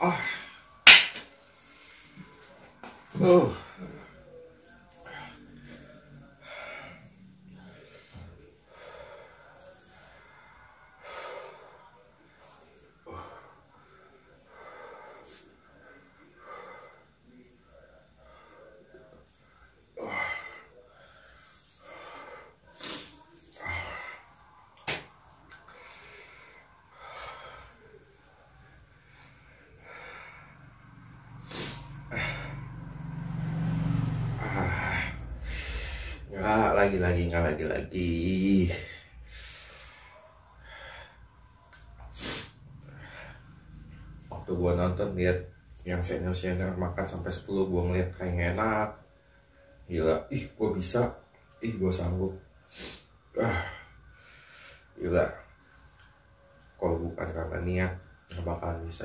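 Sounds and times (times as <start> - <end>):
man breathing heavily: 1.4 - 24.7, 25.5 - 36.4, 38.4 - 44.2
loud sniffs: 21.8 - 24.1, 29.9 - 36.3, 42.0 - 44.1.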